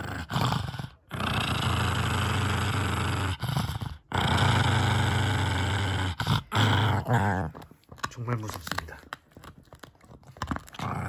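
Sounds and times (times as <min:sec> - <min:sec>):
dog growling: 0:00.0 - 0:09.1, 0:10.4 - 0:11.0.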